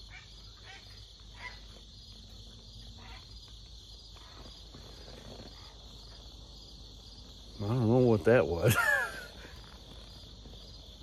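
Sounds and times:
distant bird calls: 0.0 - 6.3
insects chirping: 0.0 - 11.0.

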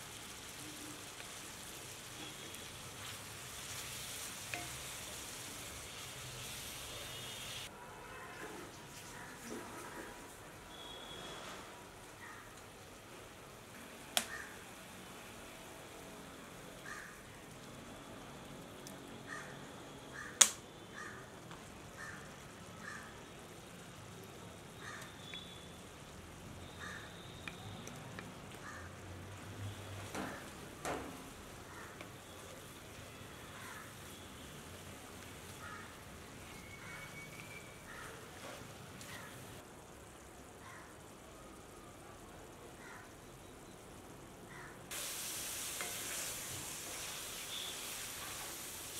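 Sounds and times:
crows cawing: 14.3 - 14.6, 16.8 - 17.2, 19.3 - 21.3, 22.0 - 23.2, 24.8 - 25.1, 26.8 - 27.2, 28.6 - 29.0, 31.7 - 32.0, 33.6 - 33.9, 35.6 - 36.0, 37.9 - 38.2, 40.6 - 40.9, 42.8 - 43.1, 44.5 - 44.8.

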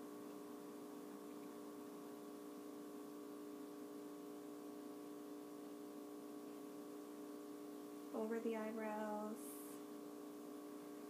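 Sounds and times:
steady hum of held tones: 0.0 - 11.0.

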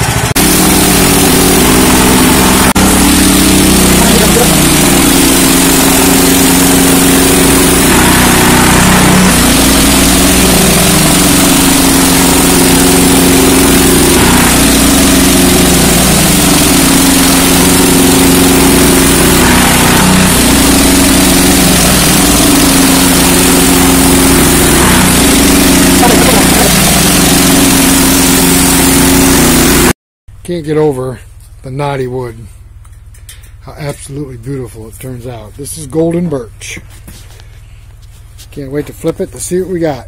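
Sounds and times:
sawmill engine running under load: 0.0 - 30.0
band blade sawing through log: 0.3 - 29.9.

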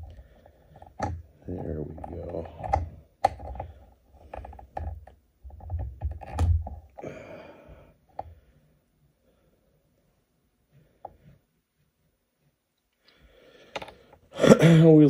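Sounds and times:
tools clicking and knocking: 0.0 - 7.0, 13.7 - 14.2.

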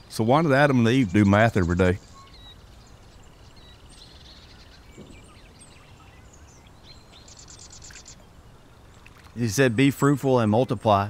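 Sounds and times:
small bird chirps and whistles: 1.6 - 2.6.

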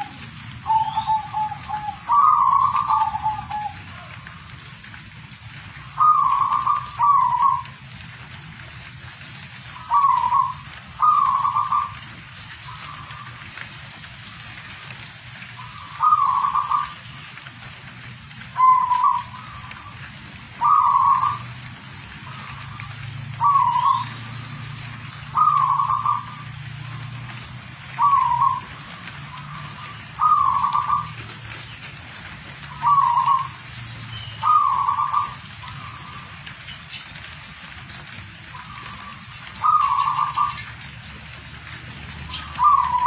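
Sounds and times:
dove cooing: 0.0 - 4.6, 5.8 - 7.8, 9.7 - 13.5, 15.6 - 17.0, 18.5 - 21.4, 22.2 - 24.2, 25.3 - 27.1, 27.9 - 31.5, 32.6 - 33.6, 34.4 - 36.4, 38.5 - 40.8, 42.3 - 43.0.

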